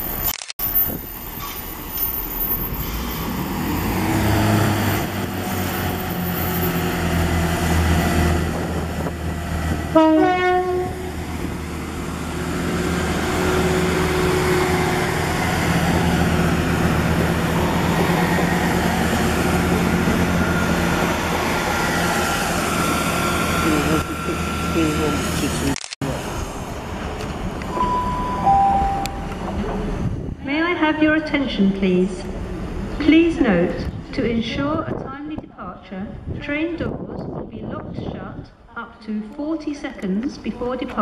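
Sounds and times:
diesel train engines running: 0:00.0 - 0:35.1
train horn blast: 0:09.9 - 0:11.1.

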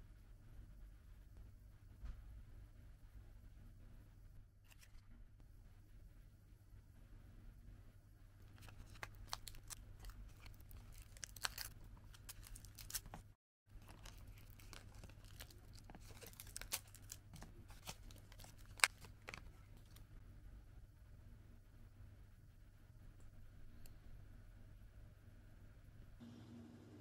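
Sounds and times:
plastic film peeling and crinkling: 0:08.4 - 0:20.0.

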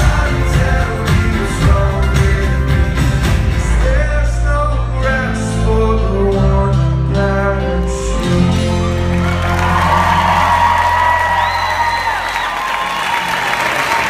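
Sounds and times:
person singing: 0:00.0 - 0:11.0
live band playing: 0:00.0 - 0:14.0.

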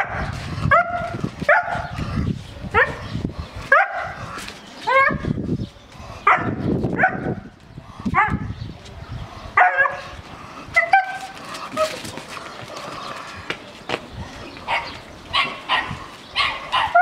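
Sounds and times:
dog barking and yipping: 0:00.0 - 0:01.9, 0:03.7 - 0:04.2, 0:06.3 - 0:07.4, 0:09.6 - 0:10.1, 0:10.8 - 0:12.0, 0:14.7 - 0:17.0.

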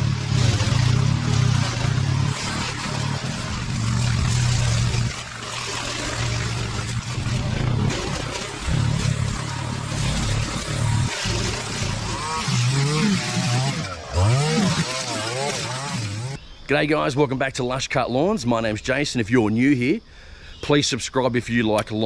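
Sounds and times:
line trimmer engine: 0:00.0 - 0:16.4
push mower engine: 0:00.0 - 0:16.4.

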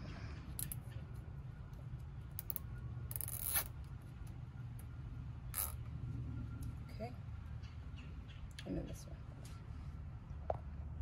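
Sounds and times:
zip tie ratcheting: 0:02.4 - 0:03.9, 0:05.5 - 0:05.8.

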